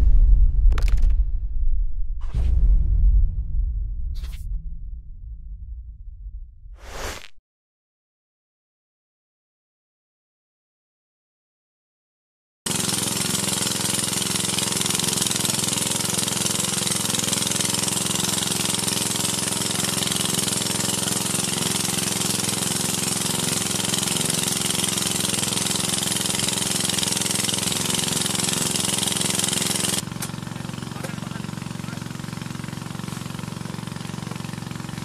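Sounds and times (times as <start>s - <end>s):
small engine running: 12.7s - 35.0s.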